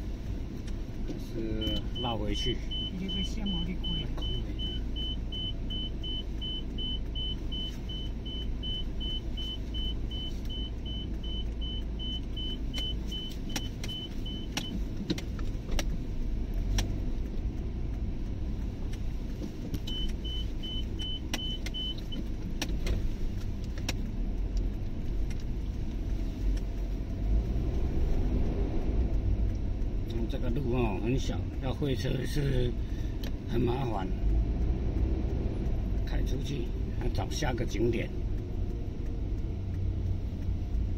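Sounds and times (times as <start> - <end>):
road and engine rumble: 0.0 - 40.9
repeating electronic beep: 1.6 - 14.6, 19.8 - 22.2.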